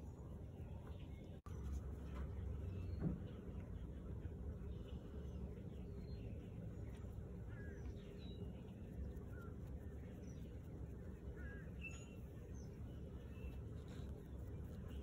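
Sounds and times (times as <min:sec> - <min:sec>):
low background rumble: 0:00.0 - 0:15.0
faint bird chirps: 0:04.6 - 0:15.0.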